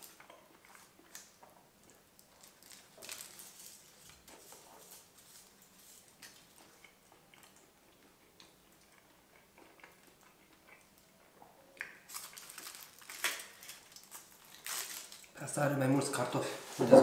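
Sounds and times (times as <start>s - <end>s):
aluminium foil crinkling: 0.0s - 6.7s, 12.0s - 15.5s
chewing with wet mouth clicks: 0.1s - 2.0s, 6.2s - 12.1s.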